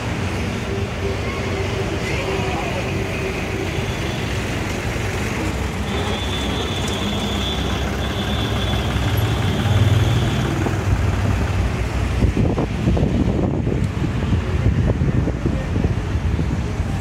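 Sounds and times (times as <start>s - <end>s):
diesel truck engine idling: 2.8s - 12.5s.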